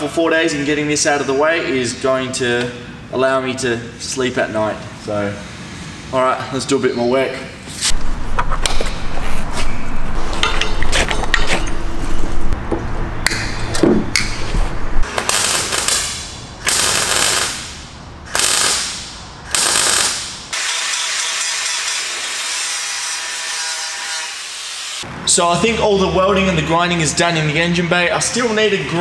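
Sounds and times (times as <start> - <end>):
welder crackling and spitting: 15.0 - 20.4
grinder grinding metal: 19.5 - 25.0.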